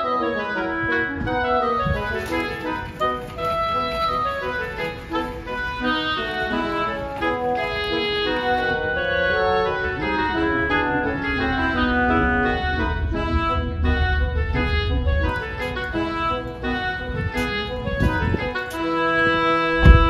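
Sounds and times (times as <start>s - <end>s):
keyboard melody over chords: 0.0s - 20.0s
low rumble: 8.1s - 18.5s.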